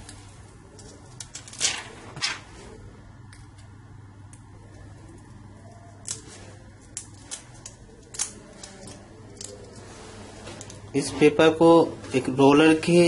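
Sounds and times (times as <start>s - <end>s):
low steady hum: 0.0s - 13.0s
plastic film crinkling: 0.2s - 2.7s.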